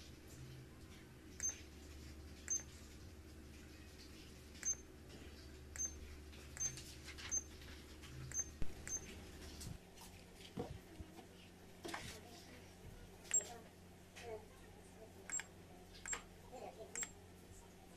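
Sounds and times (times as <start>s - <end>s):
low steady hum: 0.0s - 17.9s
button clicks: 15.3s - 16.2s, 17.0s - 17.2s.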